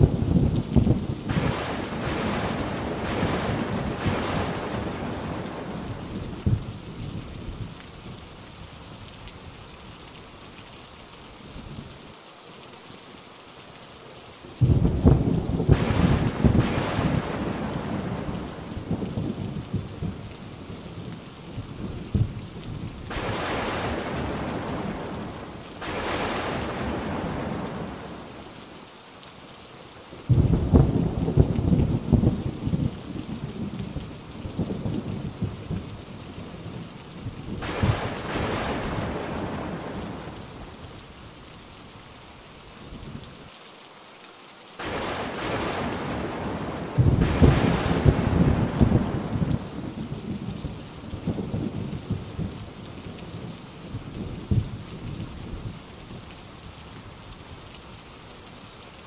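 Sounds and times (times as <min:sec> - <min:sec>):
rolling thunder: 0:00.0 - 0:06.8, 0:14.6 - 0:20.2, 0:21.6 - 0:28.2, 0:30.3 - 0:33.8, 0:36.8 - 0:40.4, 0:44.8 - 0:50.6
heavy rain falling: 0:00.0 - 0:59.0.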